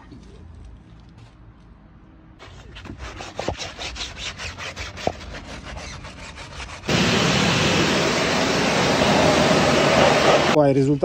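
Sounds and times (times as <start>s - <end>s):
fast rhythmic rubbing: 2.4s - 6.9s
pressure washer spraying wheel: 5.0s - 10.6s.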